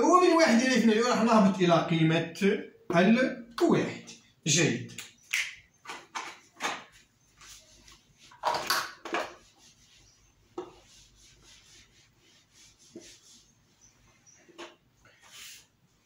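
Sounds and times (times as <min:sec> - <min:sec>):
whiteboard eraser wiping: 0:07.0 - 0:08.4, 0:09.0 - 0:16.0.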